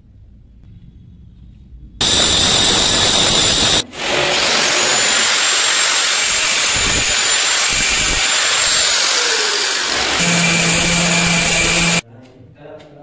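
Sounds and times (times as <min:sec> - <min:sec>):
angle grinder cutting stone: 0:02.0 - 0:12.0.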